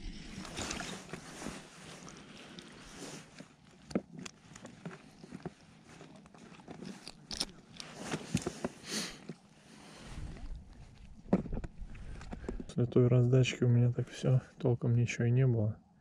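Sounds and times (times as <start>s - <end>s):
gear clicks and crunches: 0.3s - 9.5s, 10.2s - 12.8s.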